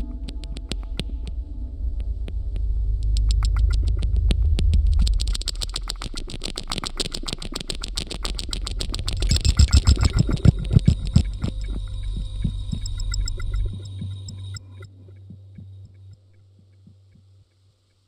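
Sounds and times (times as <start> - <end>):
steady low hum: 0.0 - 18.0
fast stream of electronic clicks: 2.0 - 14.9
deep pulsing thuds: 9.0 - 14.5.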